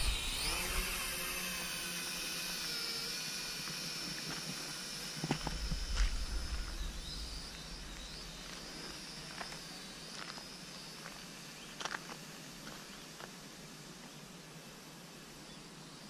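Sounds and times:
drone propellers whining: 0.0 - 11.8.

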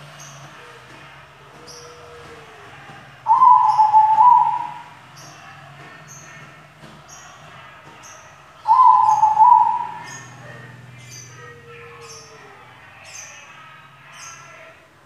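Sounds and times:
dove cooing: 3.3 - 5.0, 8.6 - 13.2.

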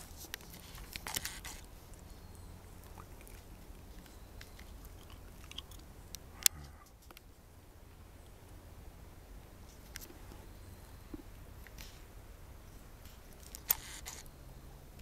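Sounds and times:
faint crackles: 0.0 - 2.1.

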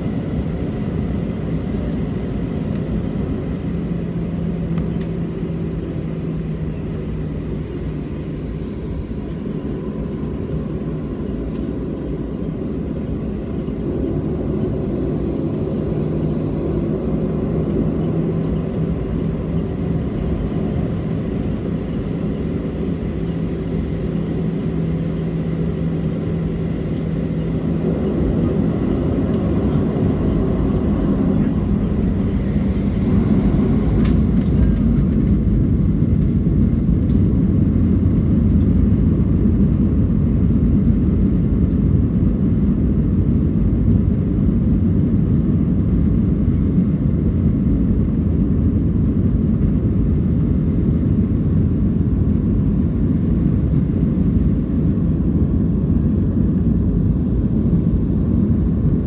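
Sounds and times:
airplane cabin rumble: 0.0 - 59.0.

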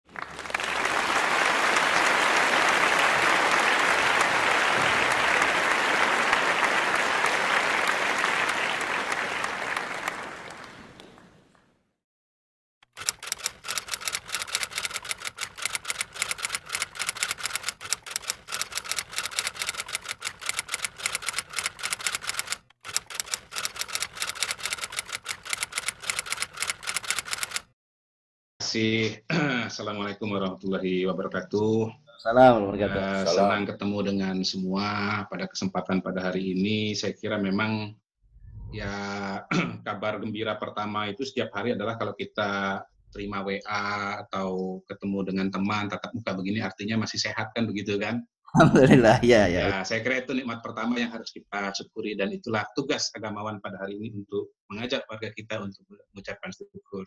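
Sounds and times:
applause: 0.0 - 11.6
typewriter keystroke clicks: 12.9 - 27.6.

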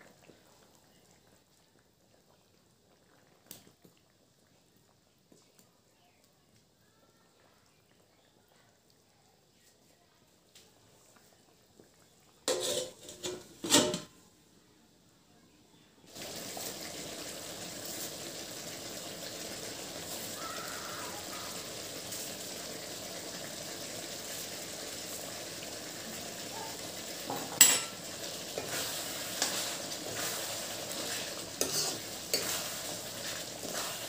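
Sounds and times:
spoon clinking on wok: 12.5 - 13.4, 27.6 - 28.0
metal spoon scraping a pan: 12.5 - 14.1, 27.6 - 34.0
meat sizzling in a wok: 16.1 - 34.0.

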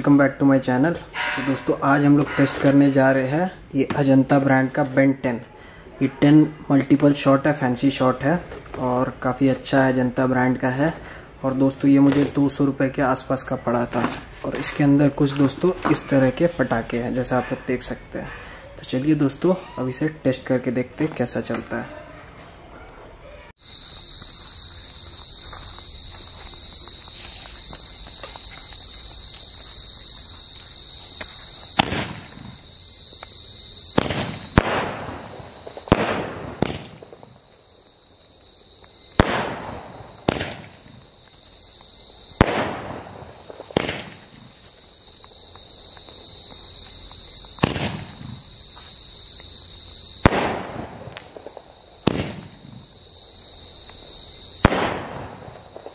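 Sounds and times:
crickets chirping: 0.0 - 21.9, 23.6 - 55.9
firework bangs: 1.0 - 4.4, 23.6 - 37.6, 38.8 - 53.1, 54.0 - 55.9.

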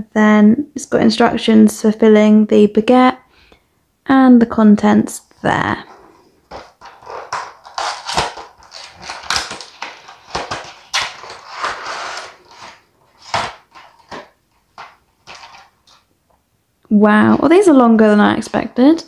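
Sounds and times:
packaging rustling and crinkling: 5.8 - 16.1
cardboard box being opened: 5.9 - 15.7.

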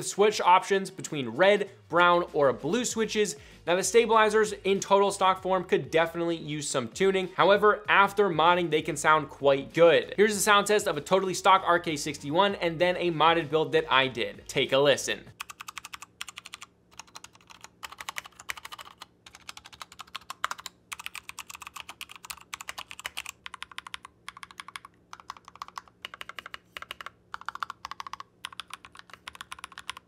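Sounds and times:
mechanical keyboard typing: 15.3 - 30.0.

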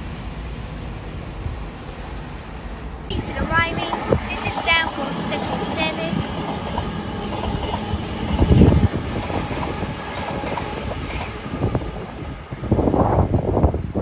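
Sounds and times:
train wheels rumbling on rail: 0.0 - 14.0.

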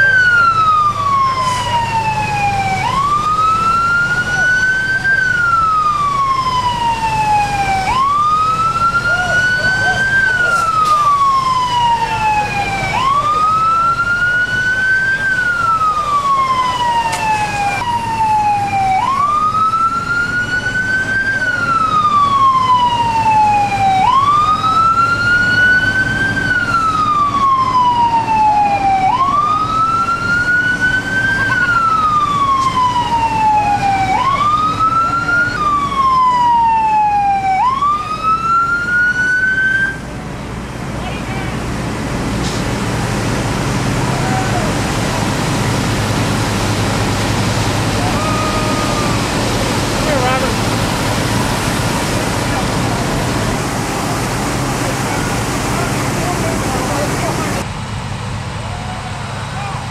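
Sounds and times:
fire truck siren wailing: 0.0 - 59.9.

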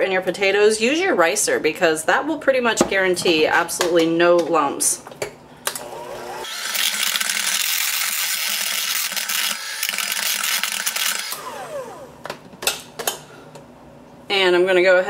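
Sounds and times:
electric hand mixer running: 5.7 - 12.2.

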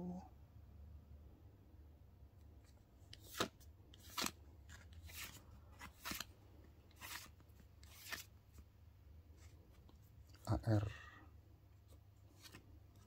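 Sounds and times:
cards swishing off a stack: 3.1 - 6.3, 7.0 - 8.3.

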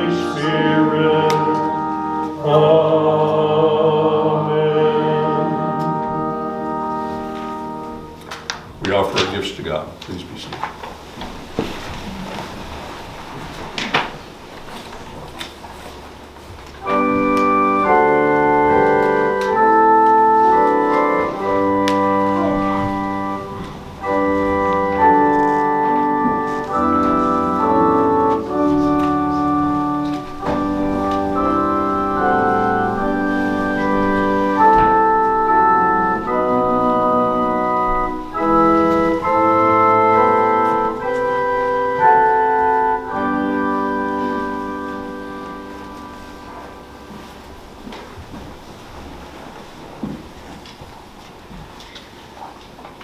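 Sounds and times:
organ playing a hymn: 0.0 - 9.8, 10.8 - 49.8.

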